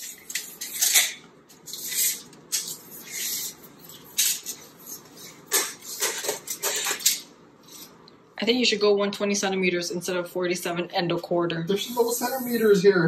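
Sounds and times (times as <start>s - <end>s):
tape measure scraping and rattling: 0.0s - 7.9s.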